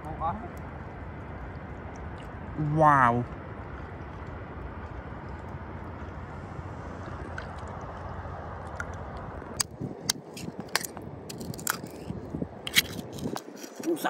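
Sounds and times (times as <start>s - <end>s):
metal pick scraping oyster shells: 10.1s - 14.0s.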